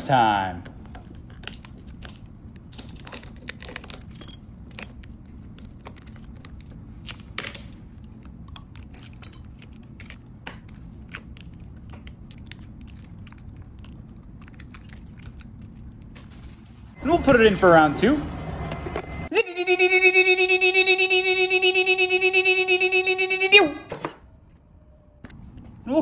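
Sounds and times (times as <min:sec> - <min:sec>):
steady low hum: 0:00.0 - 0:26.0
glass shards crackling and tinkling: 0:00.9 - 0:11.7, 0:12.3 - 0:16.0.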